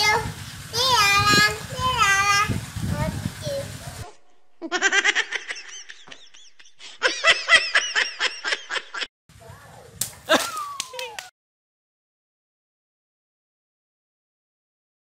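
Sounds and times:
young child giggling: 4.6s - 9.1s, 10.3s - 11.3s
water balloon bursting: 10.0s - 11.1s.

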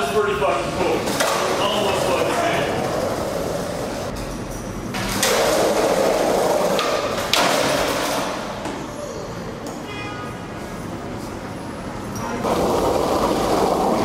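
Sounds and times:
skateboard wheels rolling: 0.9s - 4.1s, 5.0s - 8.9s, 12.2s - 14.0s.

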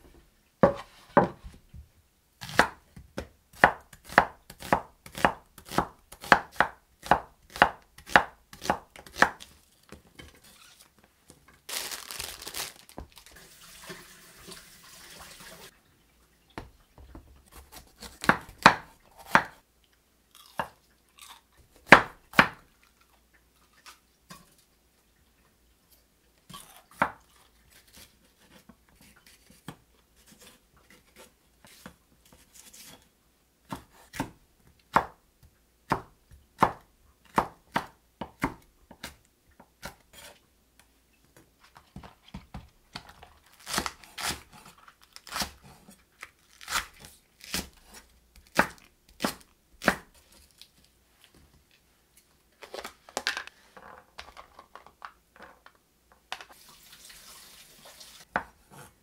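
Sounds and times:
knife chopping on wooden board: 2.4s - 9.4s, 17.5s - 19.6s, 21.9s - 22.6s.

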